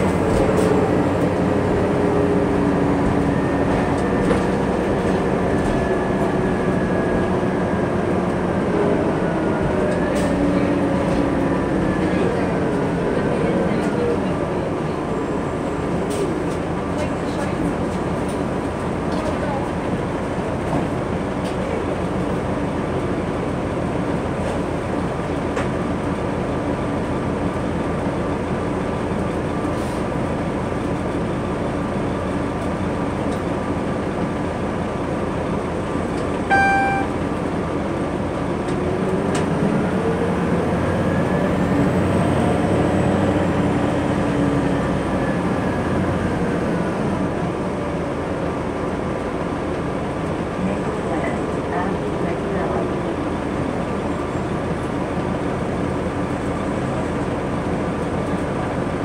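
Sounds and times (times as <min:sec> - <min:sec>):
bus engine droning: 0:00.0 - 0:59.0
road noise: 0:00.0 - 0:59.0
short electronic beep: 0:36.5 - 0:37.2.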